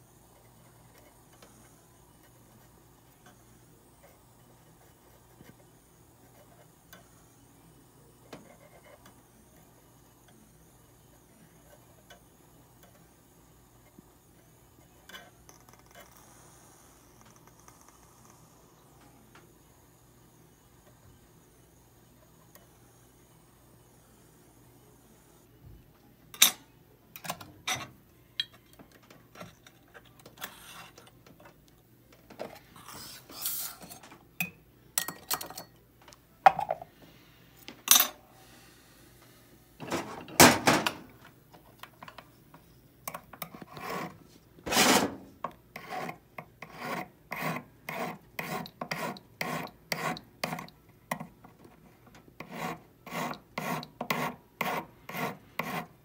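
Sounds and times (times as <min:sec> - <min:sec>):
tools scraping on bench: 0:43.1 - 0:51.8, 0:52.4 - 0:55.9
hand file rasping on metal: 0:45.8 - 0:50.7, 0:52.4 - 0:55.9.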